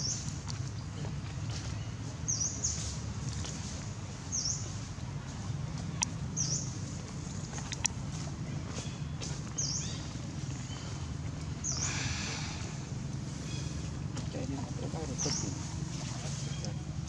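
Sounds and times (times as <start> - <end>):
steady low rumble: 0.0 - 17.0
bird chirping: 8.6 - 12.8.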